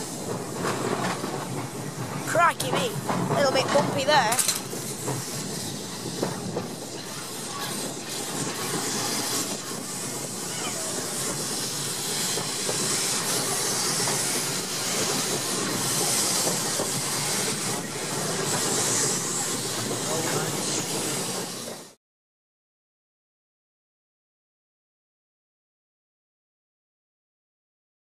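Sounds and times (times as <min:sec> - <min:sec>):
tram wheels rumbling on rails: 0:00.0 - 0:22.0.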